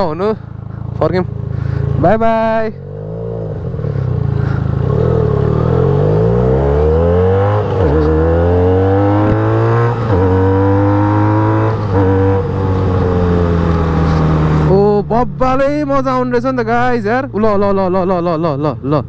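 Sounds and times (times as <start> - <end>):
motorcycle engine accelerating: 0.0 - 18.4.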